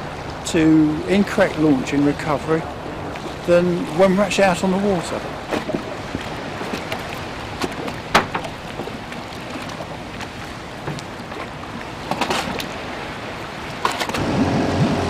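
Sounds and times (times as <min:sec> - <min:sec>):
small waves lapping: 0:00.0 - 0:15.0
sharp knocks and clicks: 0:07.6 - 0:08.6.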